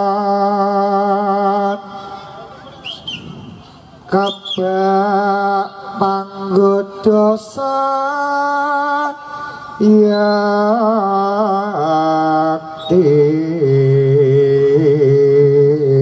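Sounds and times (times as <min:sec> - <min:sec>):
person singing long notes: 0:04.1 - 0:16.0.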